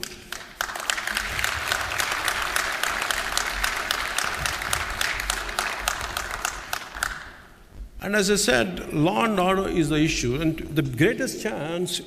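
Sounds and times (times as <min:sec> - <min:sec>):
audience applauding: 0:00.0 - 0:07.5.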